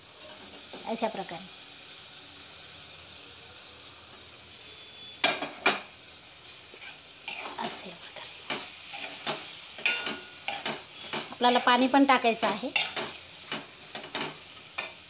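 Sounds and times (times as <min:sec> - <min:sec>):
chicken sizzling in a pan: 0:00.0 - 0:15.0
spatula scraping a pan: 0:06.5 - 0:15.0.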